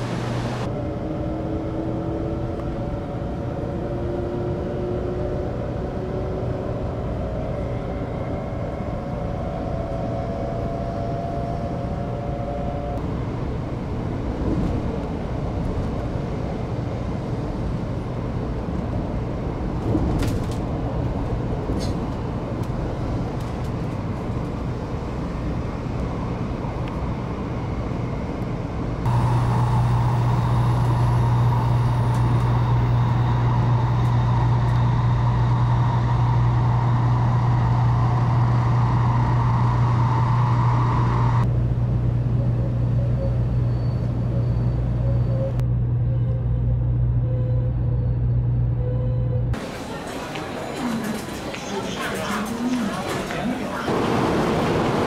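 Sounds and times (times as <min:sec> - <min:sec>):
train wheels and air noise: 0:00.0 - 0:45.6, 0:49.5 - 0:55.0
traction motor whine rising: 0:29.1 - 0:41.5
loud low hum: 0:29.1 - 0:43.5.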